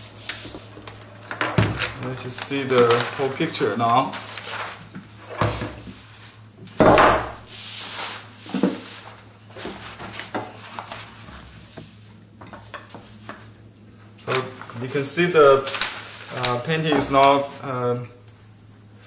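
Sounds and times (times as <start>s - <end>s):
paper rustling: 1.7s - 5.4s, 7.6s - 11.5s, 14.2s - 17.7s.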